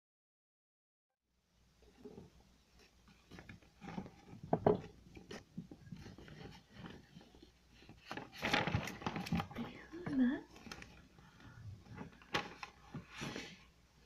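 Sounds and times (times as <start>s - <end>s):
paper rustling: 2.8s - 13.7s.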